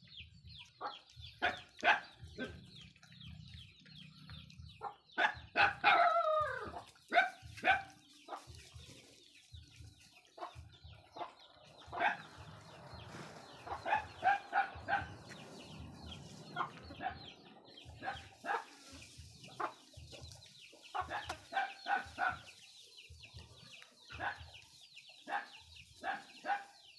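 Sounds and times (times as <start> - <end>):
chicken clucking: 0.0 - 26.9.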